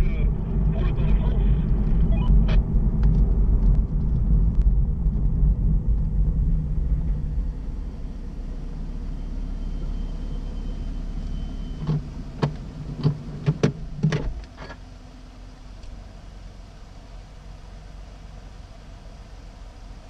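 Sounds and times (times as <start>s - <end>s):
car engine rumble: 0.0s - 20.0s.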